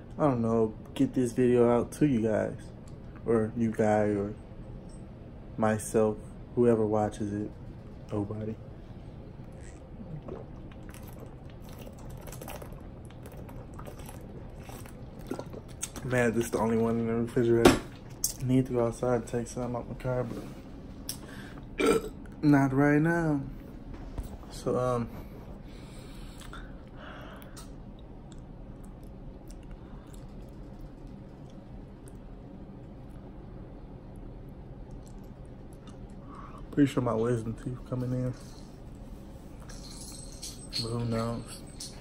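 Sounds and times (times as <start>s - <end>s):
low room hum: 0.0s - 42.0s
person gulping and swallowing: 9.4s - 16.7s, 21.1s - 22.4s.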